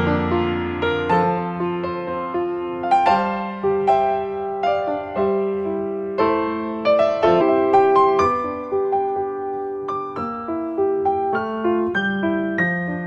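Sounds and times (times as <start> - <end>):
piano notes and chords: 0.0 - 13.0.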